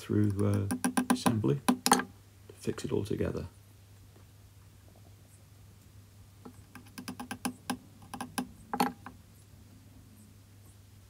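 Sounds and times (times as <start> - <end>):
small parts clicking and tapping: 0.2 - 2.1, 6.4 - 9.2.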